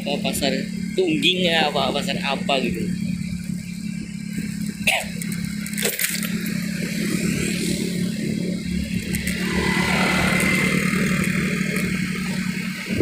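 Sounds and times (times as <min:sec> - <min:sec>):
motor scooter engine running: 0:00.0 - 0:13.0
wind and road noise: 0:00.6 - 0:13.0
motor scooter passing: 0:07.2 - 0:13.0.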